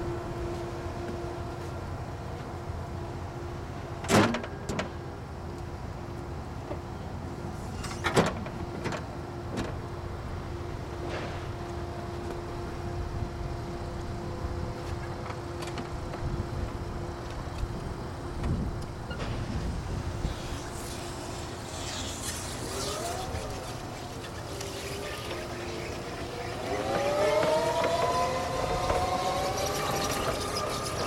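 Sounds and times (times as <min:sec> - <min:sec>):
electric motor whine: 0:19.9 - 0:31.0.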